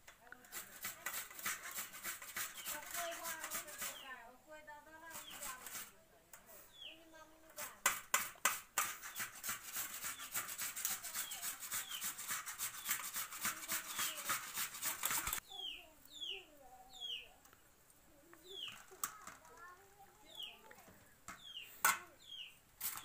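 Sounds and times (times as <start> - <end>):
potato grating on metal grater: 0.4 - 4.0, 5.1 - 5.9, 7.6 - 15.4, 22.8 - 23.0
birds chirping: 2.3 - 4.3, 6.6 - 7.4, 9.1 - 23.0.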